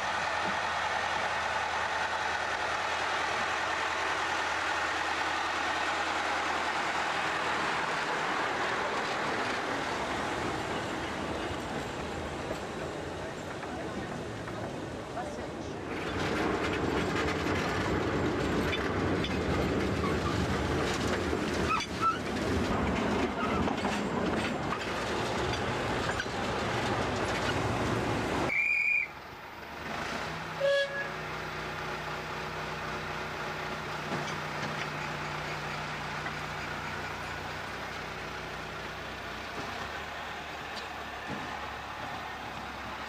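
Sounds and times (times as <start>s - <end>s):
locomotive engine running: 0.0s - 43.0s
train rumbling over track: 0.0s - 43.0s.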